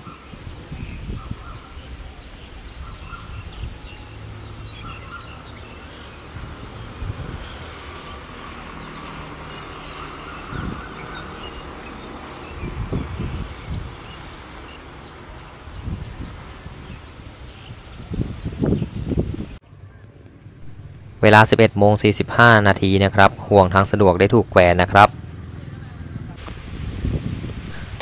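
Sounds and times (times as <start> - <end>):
wind gusts hitting microphone: 0.0 - 19.6, 26.0 - 28.0
birds chirping: 0.0 - 26.5.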